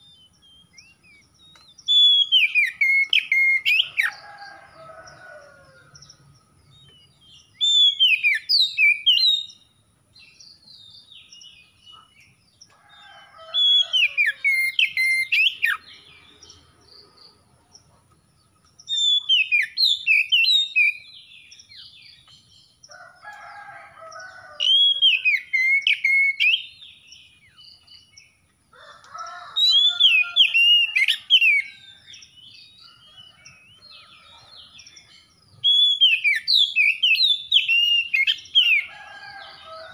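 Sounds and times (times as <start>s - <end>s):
bird whistling song: 0.4s - 4.2s, 7.5s - 9.6s, 13.5s - 15.8s, 18.8s - 21.1s, 24.7s - 26.9s, 35.6s - 38.9s.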